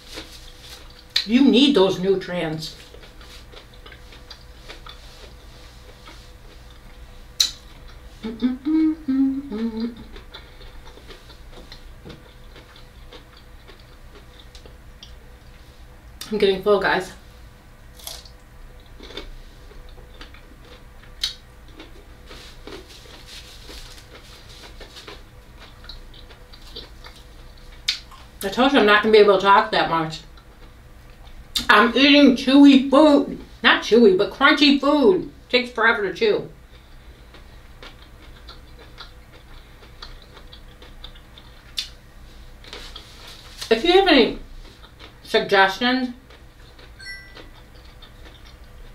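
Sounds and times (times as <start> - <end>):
person chewing crunchy vegetable: 0.0 - 1.3, 2.6 - 8.8, 9.5 - 16.3, 17.9 - 28.4, 30.2 - 31.7, 36.6 - 43.7, 44.4 - 45.3, 46.2 - 48.9
wet mouth clicks: 7.4 - 10.5, 21.2 - 21.4, 40.0 - 42.0.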